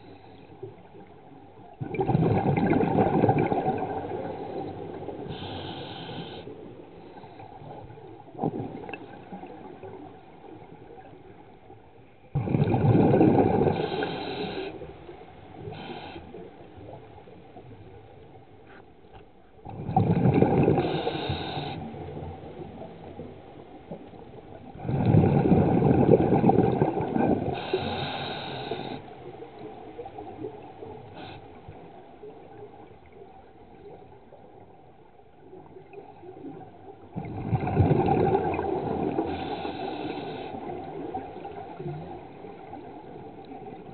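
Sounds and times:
exhaled bubbles bursting: 0:01.8 - 0:04.4, 0:12.4 - 0:13.8, 0:19.7 - 0:21.0, 0:24.7 - 0:27.6, 0:36.5 - 0:39.3
regulator hiss: 0:05.3 - 0:06.5, 0:13.7 - 0:14.8, 0:15.6 - 0:16.4, 0:20.8 - 0:21.9, 0:27.6 - 0:29.1, 0:39.3 - 0:40.7.

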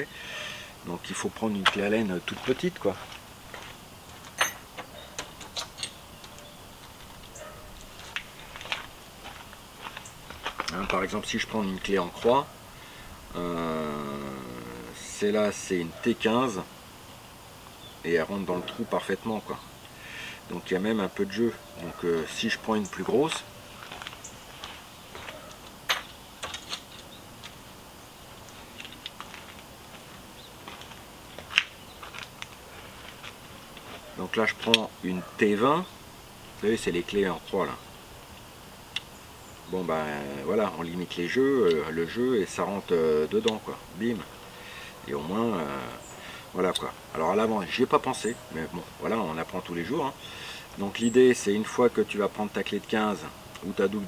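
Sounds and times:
metallic clinks of hand tools: 0:04.4 - 0:04.6, 0:05.2 - 0:06.5.

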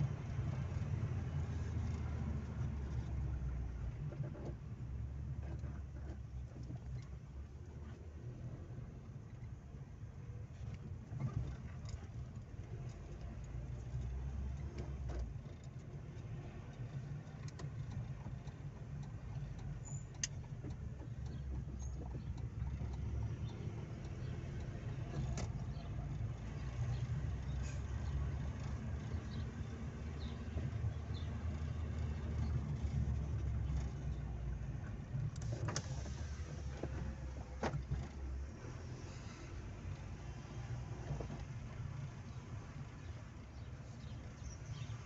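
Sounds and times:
car interior rumble: 0:00.0 - 0:45.0
light clicks and knocks: 0:10.5 - 0:38.5.

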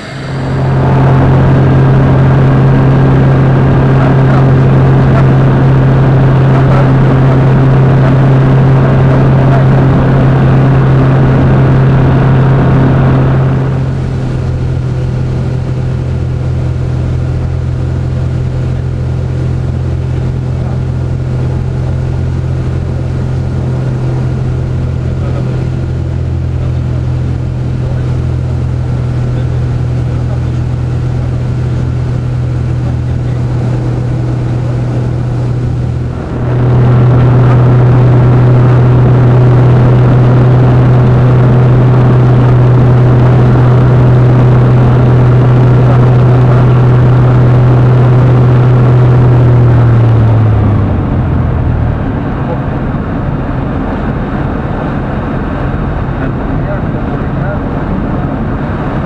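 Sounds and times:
aircraft engine and propeller droning: 0:00.0 - 0:59.0.

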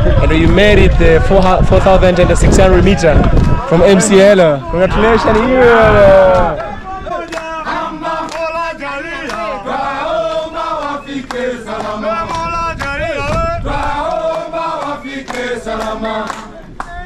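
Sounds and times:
hand claps: 0:06.3 - 0:08.6, 0:09.2 - 0:09.5, 0:10.2 - 0:17.0
men singing together: 0:06.6 - 0:16.8.

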